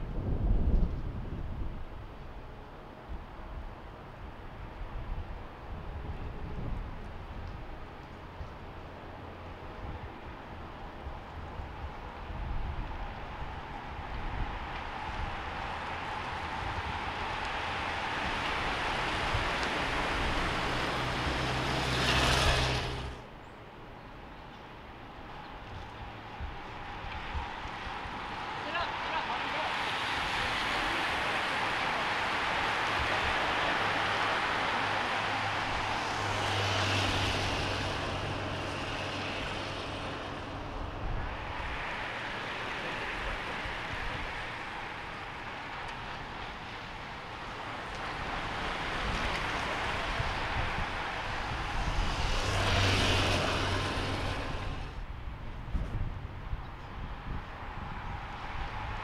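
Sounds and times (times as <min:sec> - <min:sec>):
bicycle tyres hissing past: 0:13.2 - 0:23.2, 0:25.9 - 0:55.0
motorcycle riding by: 0:20.4 - 0:23.2.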